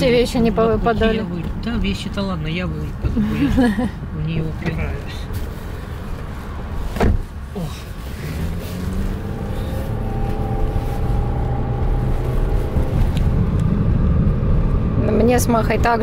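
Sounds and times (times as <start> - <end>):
car engine and road noise: 0.0 - 16.0
car door slamming: 6.8 - 7.4.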